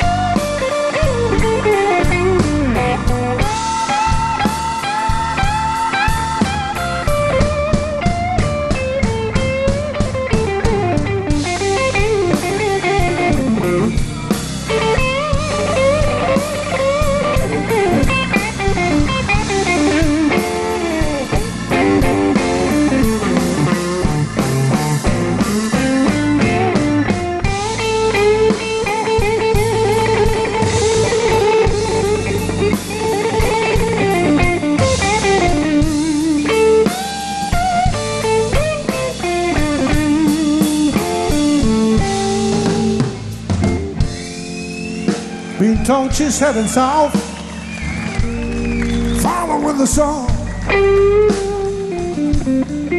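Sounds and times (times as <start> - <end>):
bass guitar: 0.0 - 52.9
drums: 0.0 - 52.9
electric guitar with bent notes: 0.0 - 52.9.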